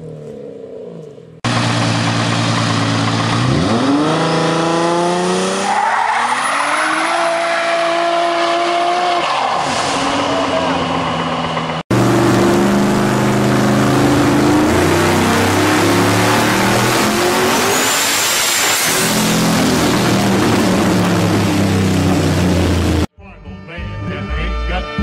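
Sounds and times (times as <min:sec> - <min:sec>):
car engine burnout: 0:01.4 - 0:23.1
car engine revving high on dyno: 0:03.0 - 0:05.7, 0:11.9 - 0:23.1.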